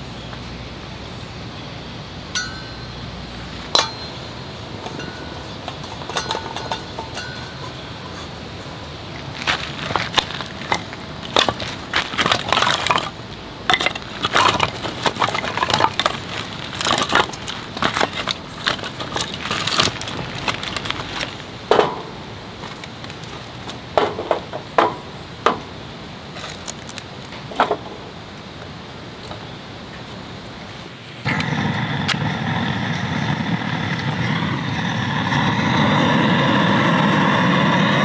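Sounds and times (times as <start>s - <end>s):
wood knocking in metal fire pit: 3.8s - 8.8s, 9.9s - 25.7s, 27.5s - 28.0s
firewood clattering together: 4.8s - 25.7s, 26.3s - 28.0s.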